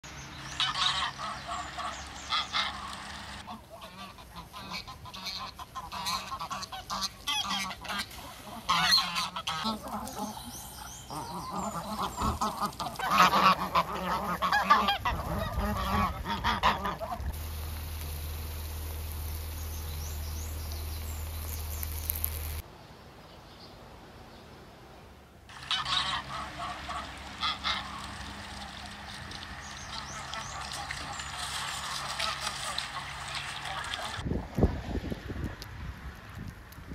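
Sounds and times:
geese honking: 0.4s - 22.6s, 25.5s - 34.2s
egg sizzling in a pan: 17.3s - 22.6s.

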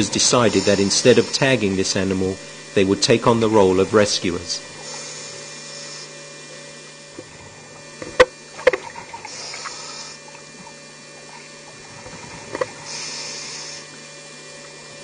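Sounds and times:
diver regulator inhalation hiss: 0.0s - 3.0s, 3.6s - 7.8s, 8.6s - 14.4s
low hum: 0.0s - 15.0s.

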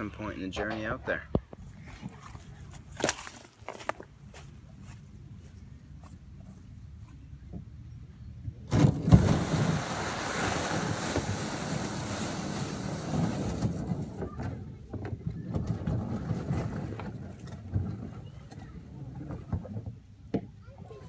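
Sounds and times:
kayak scraping across sand: 8.7s - 14.2s, 15.5s - 19.8s.

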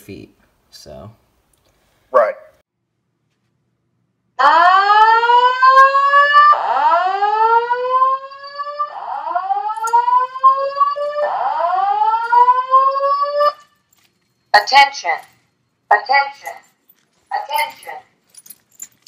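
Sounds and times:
fire alarm whoop tone: 4.4s - 13.8s.

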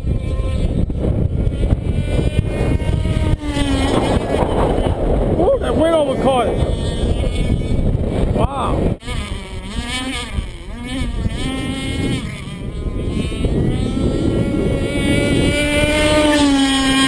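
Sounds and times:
model boat motor running: 0.0s - 17.0s
wind buffeting microphone: 0.0s - 17.0s.

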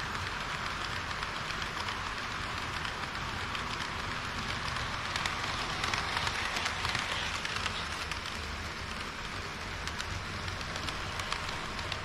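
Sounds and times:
model train wheels rolling: 0.0s - 12.0s
wheels clicking over rail joints: 0.0s - 12.0s.

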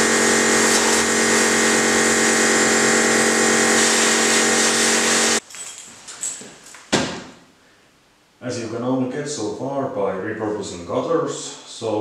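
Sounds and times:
pressure washer pump hum: 0.0s - 5.4s
water jet spraying metal: 0.0s - 5.4s.

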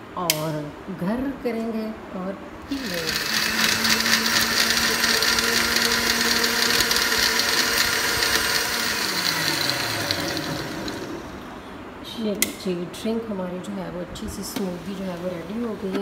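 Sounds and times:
blender motor running: 2.7s - 11.6s.

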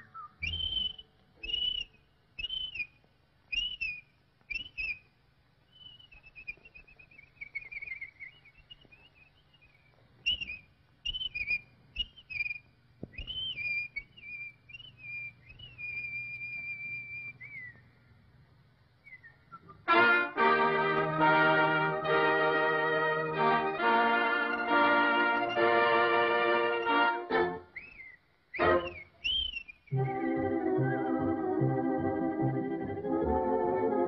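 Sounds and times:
whistled bird calls: 0.0s - 5.1s, 5.7s - 17.9s, 19.0s - 19.9s, 26.7s - 30.4s
faint low hum: 0.0s - 34.0s.

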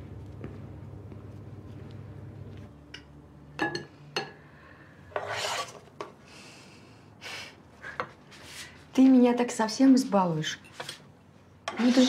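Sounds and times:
utensil scraping a frying pan: 5.1s - 6.0s, 11.6s - 12.0s.

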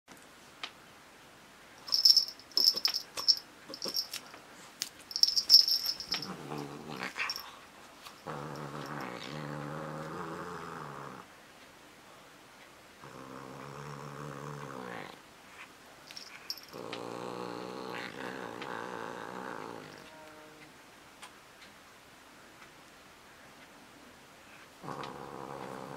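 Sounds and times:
cat collar bell jingling: 1.8s - 4.4s, 5.0s - 7.5s, 16.1s - 16.8s
cat growling low: 6.0s - 7.6s, 8.2s - 11.3s, 13.0s - 15.2s, 16.6s - 20.7s, 24.8s - 25.9s.

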